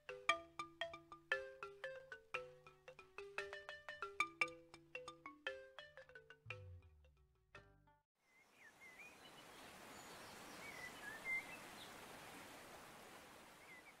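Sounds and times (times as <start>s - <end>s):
faint outdoor hiss: 0.0s - 7.0s, 8.2s - 14.0s
soft bird chirps: 8.2s - 12.5s, 13.5s - 14.0s.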